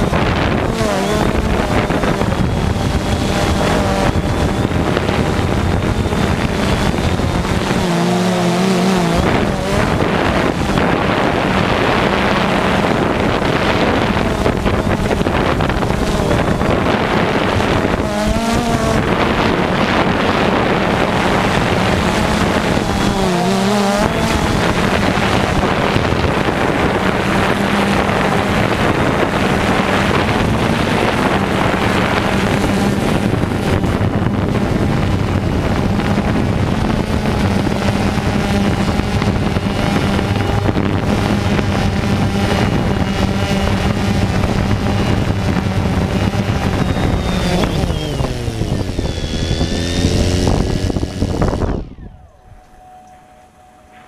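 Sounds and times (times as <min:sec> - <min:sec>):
drone motors whining: 0:00.0 - 0:54.0
wind buffeting microphone: 0:00.0 - 0:54.0.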